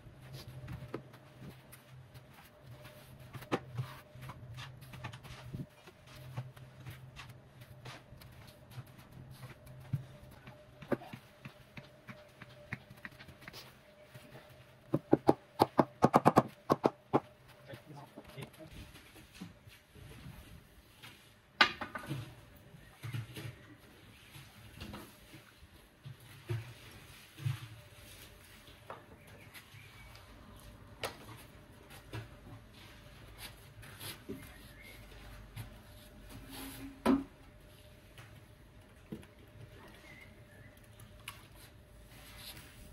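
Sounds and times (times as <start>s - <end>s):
footsteps: 0.0s - 15.4s.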